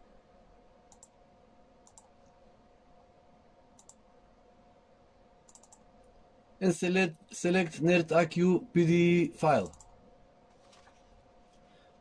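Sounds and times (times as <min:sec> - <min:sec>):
faint steady hum: 0:00.0 - 0:12.0
computer mouse clicks: 0:00.9 - 0:01.2, 0:01.8 - 0:02.4, 0:03.8 - 0:04.0, 0:05.5 - 0:05.9, 0:09.6 - 0:09.9.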